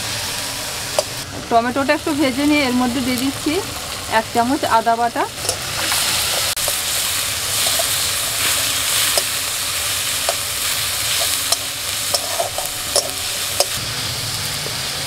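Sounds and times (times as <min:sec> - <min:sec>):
food sizzling in hot oil: 0:00.0 - 0:15.0
spatula stirring in metal pan: 0:05.4 - 0:13.8.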